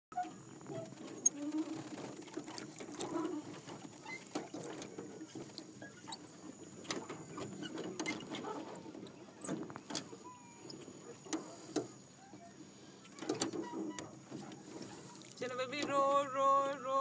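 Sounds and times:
oars knocking in metal oarlocks: 13.1s - 16.4s.

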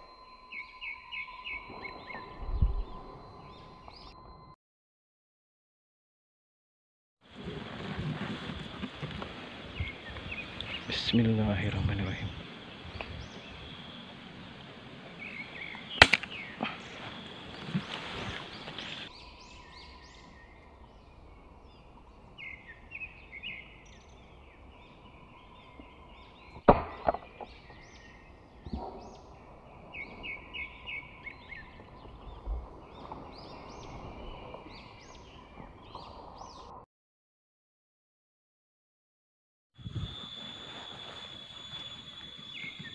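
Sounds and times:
small birds chirping: 0.1s - 4.4s, 8.8s - 36.8s, 39.8s - 42.9s
air rifle cracks: 16.0s - 16.4s.

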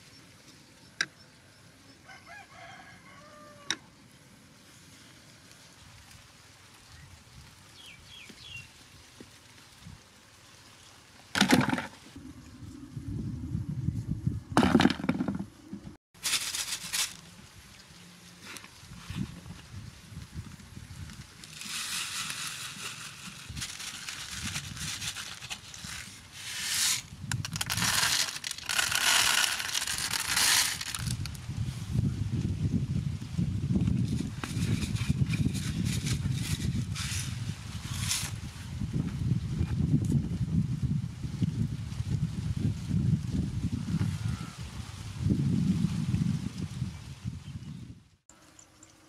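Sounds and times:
dry grain scattered on cardboard: 21.1s - 31.4s.

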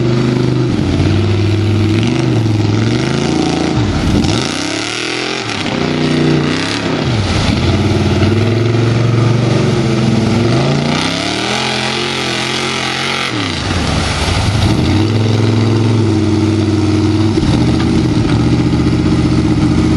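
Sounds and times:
truck driving through mud: 0.0s - 19.9s
truck engine revving hard: 0.0s - 19.9s.

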